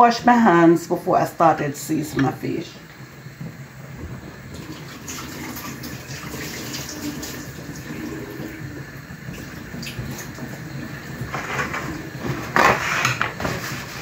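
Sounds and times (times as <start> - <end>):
hands washing with splashes: 4.6 - 8.5.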